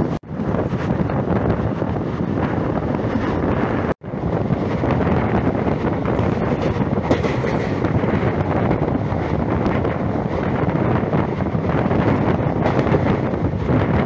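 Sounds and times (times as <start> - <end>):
train running noise: 0.0 - 14.0
wind buffeting microphone: 0.0 - 14.0.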